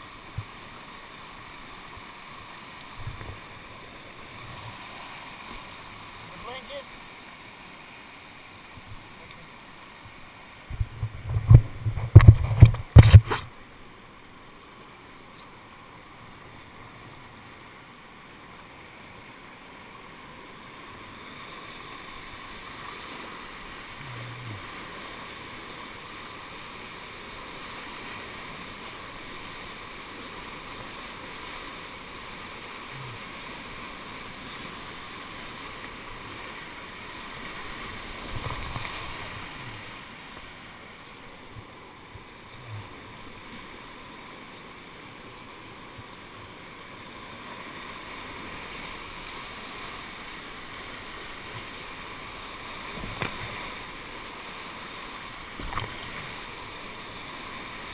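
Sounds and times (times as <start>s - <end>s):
whitewater rushing: 0.0s - 11.6s, 12.2s - 57.9s
kayak knocks and thumps: 10.6s - 13.5s, 52.9s - 53.6s.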